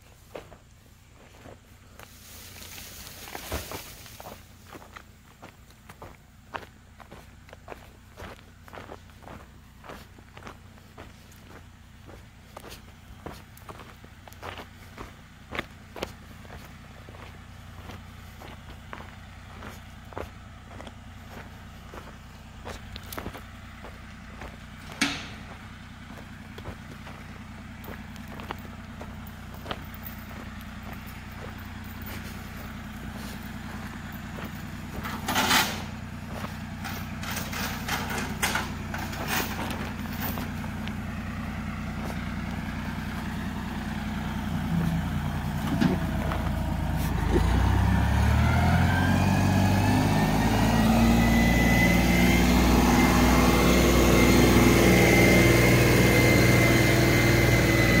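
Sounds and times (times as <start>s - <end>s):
diesel engine idling: 0.0s - 58.0s
rising whine: 17.8s - 58.0s.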